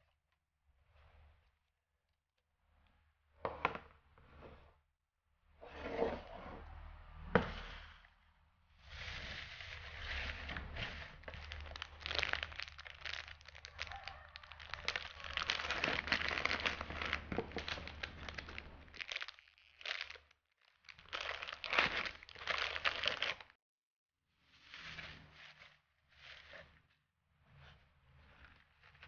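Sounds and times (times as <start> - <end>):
shredded paper crinkling: 8.9 - 23.5
plastic wrap crinkling: 9.2 - 23.5.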